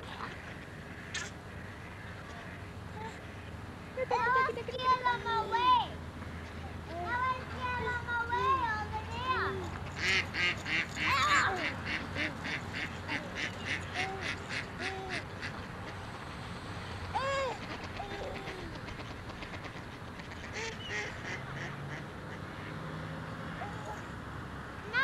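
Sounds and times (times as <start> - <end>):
ducks quacking: 9.6 - 16.1, 17.2 - 22.8.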